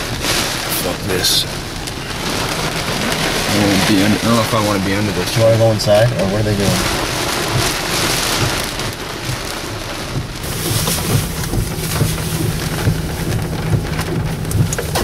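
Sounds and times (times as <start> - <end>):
heavy rain on car roof: 0.0 - 15.0
raindrops ticking on glass: 0.0 - 15.0.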